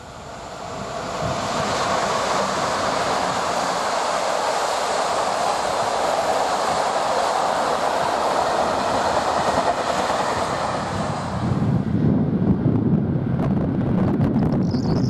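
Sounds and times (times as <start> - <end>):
train wheels rushing on rails: 0.0 - 13.9.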